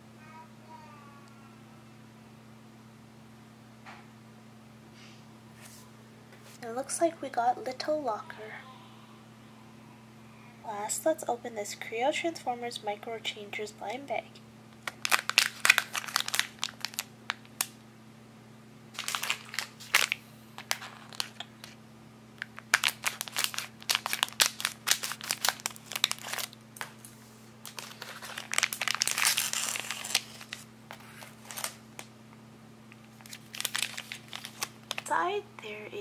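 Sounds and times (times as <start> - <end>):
plastic packaging rustling: 14.8 - 17.7, 19.0 - 21.8, 22.4 - 32.1, 33.0 - 35.1
foil bag crinkling: 14.8 - 17.8, 18.9 - 21.8, 22.4 - 32.1, 33.0 - 35.1.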